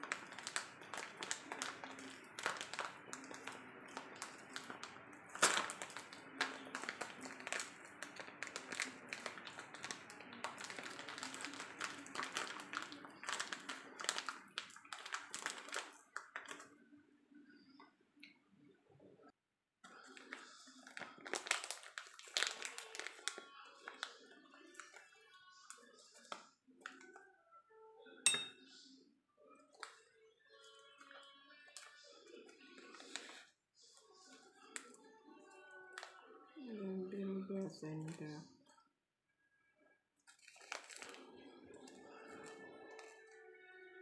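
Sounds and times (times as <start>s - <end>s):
foil sachet crinkling: 0.0s - 16.7s, 19.9s - 27.2s, 30.6s - 33.5s, 40.2s - 43.3s.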